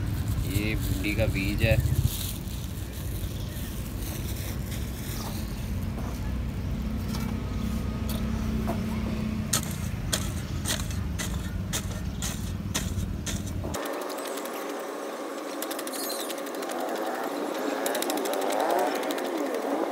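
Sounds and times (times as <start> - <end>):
hoe chopping into dry soil: 9.5 - 13.8.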